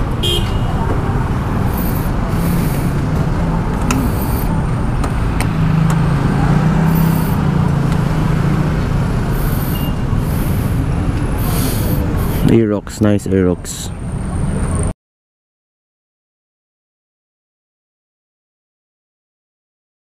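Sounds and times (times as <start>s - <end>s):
engine rumble with low hum: 0.0s - 12.5s.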